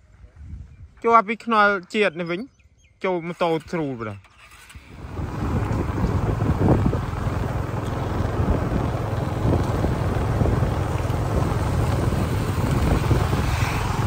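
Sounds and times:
wind buffeting microphone: 0.0s - 1.0s, 4.9s - 14.0s
motorcycle engine drone: 4.3s - 14.0s.

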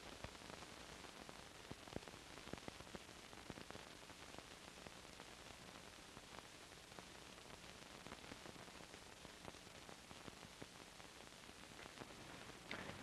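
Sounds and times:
faint steady hiss: 0.0s - 13.0s
film clicks and pops: 11.8s - 13.0s.

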